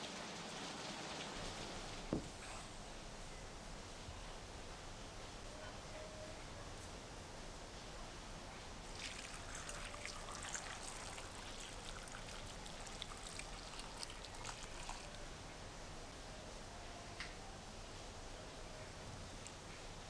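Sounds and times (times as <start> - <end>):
liquid pouring: 8.8 - 15.3.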